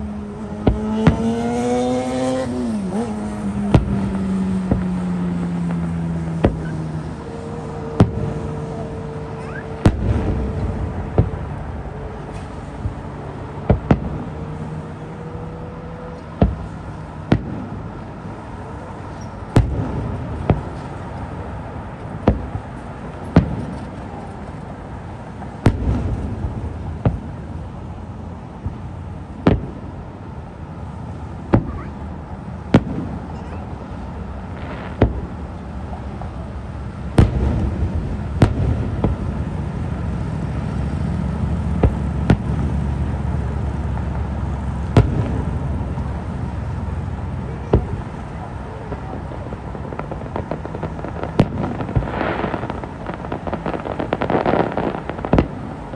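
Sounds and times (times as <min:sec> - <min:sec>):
low rumble: 0:05.8 - 0:16.7
firework shells bursting: 0:47.7 - 0:55.9.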